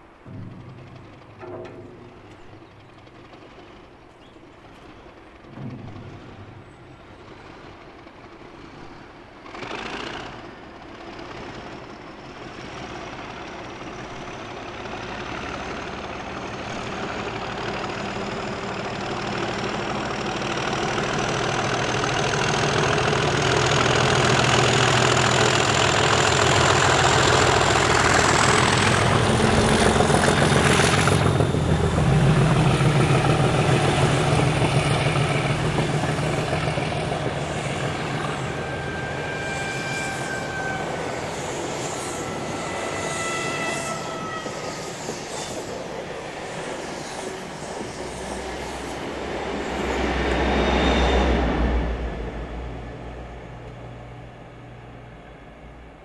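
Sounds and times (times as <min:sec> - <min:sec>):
diesel locomotive engine: 0:00.0 - 0:56.0
turbocharger whistle: 0:38.3 - 0:45.3.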